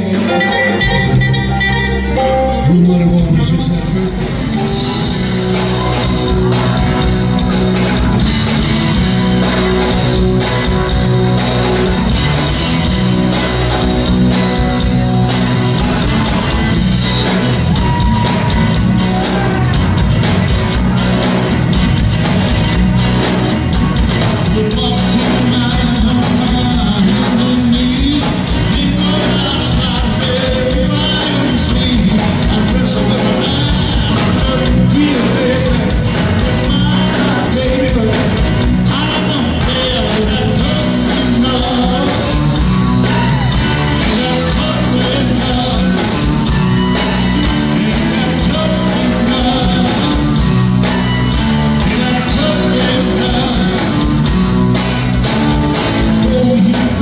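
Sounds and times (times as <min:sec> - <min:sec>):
man singing: 0:00.0 - 0:08.3, 0:24.2 - 0:57.0
blues-rock band playing: 0:00.0 - 0:57.0.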